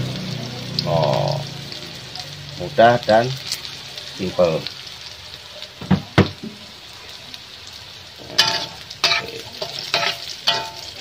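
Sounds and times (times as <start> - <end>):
garlic sizzling in oil in a wok: 0.0 - 11.0
metal spatula scraping and clanking wok: 8.2 - 11.0.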